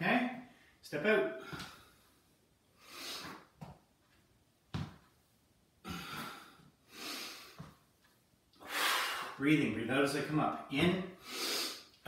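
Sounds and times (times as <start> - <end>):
man breathing: 1.4 - 3.5, 5.8 - 7.8, 8.6 - 9.4, 11.1 - 12.0
footstep thump: 4.7 - 5.1.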